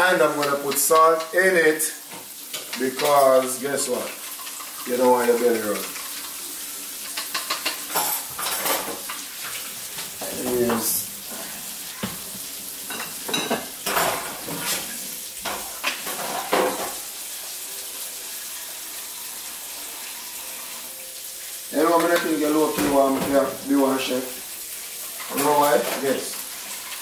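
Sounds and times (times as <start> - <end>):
food sizzling in a pot: 0.0 - 27.0
spoon clinking against pot: 7.1 - 8.7.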